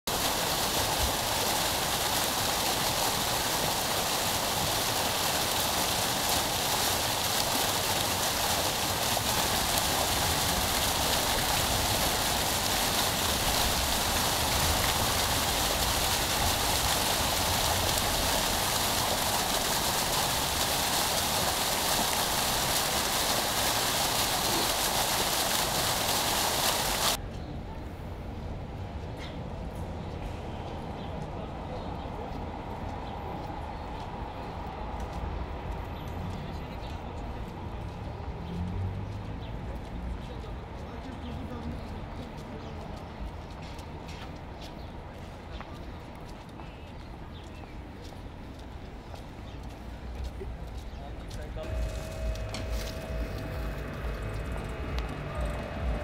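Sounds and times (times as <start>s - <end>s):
fountain water splashing: 0.1s - 27.2s, 39.7s - 56.0s.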